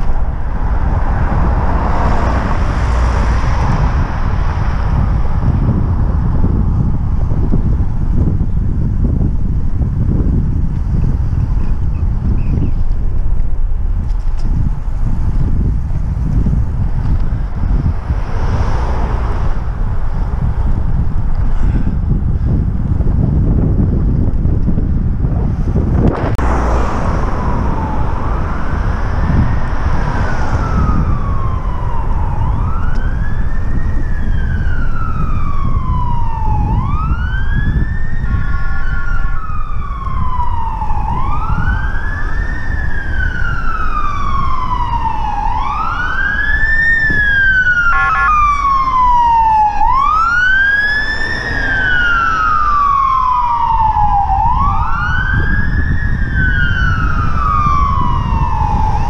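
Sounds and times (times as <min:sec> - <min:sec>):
wind rumble on microphone: 0:00.0 - 0:59.0
siren wailing: 0:26.2 - 0:59.0.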